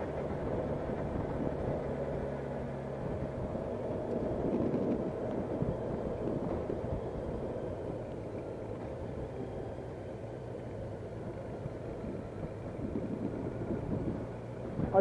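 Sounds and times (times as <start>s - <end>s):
motorcycle engine running: 0.0s - 15.0s
low rushing rumble: 10.9s - 15.0s.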